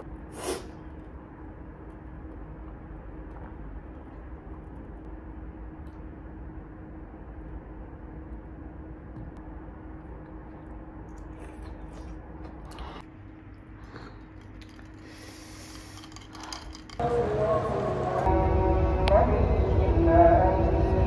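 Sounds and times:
faint drone: 0:00.0 - 0:21.0
low room hum: 0:00.0 - 0:21.0
quiet chewing: 0:10.0 - 0:15.3.

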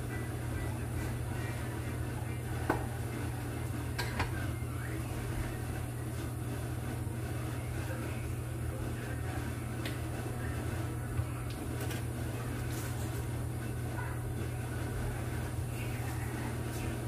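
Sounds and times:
low kitchen hum: 0:00.0 - 0:17.0
dishes and utensils clicking: 0:04.0 - 0:04.4.

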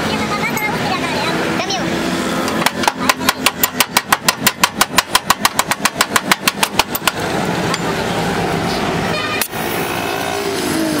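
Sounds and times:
metal tapping on sheet metal: 0:02.5 - 0:07.9.

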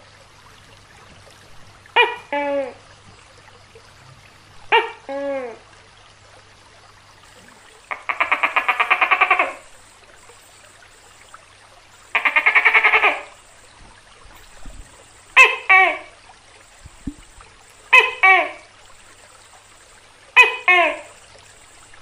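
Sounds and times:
gecko barking call: 0:02.0 - 0:02.8, 0:04.7 - 0:05.5, 0:07.5 - 0:11.3, 0:11.9 - 0:13.7, 0:14.4 - 0:22.0
gecko rattling croaks: 0:07.3 - 0:22.0.

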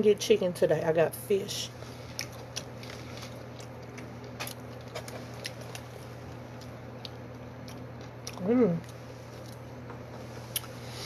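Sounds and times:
low background hum: 0:00.0 - 0:11.0
person chewing with mouth clicks: 0:02.1 - 0:09.6, 0:10.5 - 0:10.8.

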